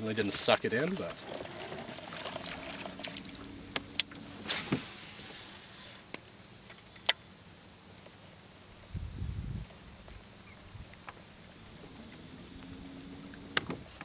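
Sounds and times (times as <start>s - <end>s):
fishing line whooshing off reel: 2.3s - 6.1s.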